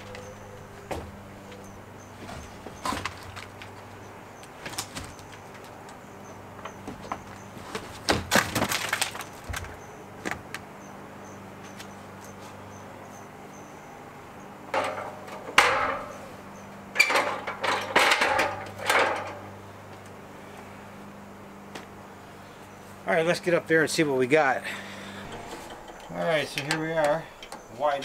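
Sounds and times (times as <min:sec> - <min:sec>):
plywood clattering and cracking: 0:00.0 - 0:10.6, 0:17.0 - 0:19.5.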